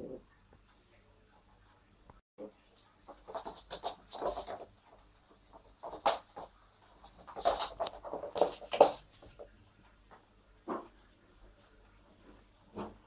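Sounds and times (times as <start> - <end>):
puppy scrabbling on floor: 3.0 - 9.5.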